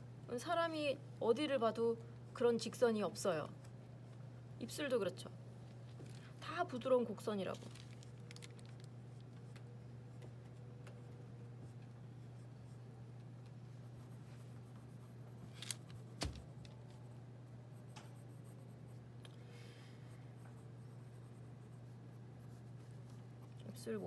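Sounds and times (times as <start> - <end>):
steady low hum: 0.0 - 24.0
pencil scratching on paper: 13.8 - 15.5, 20.4 - 23.6.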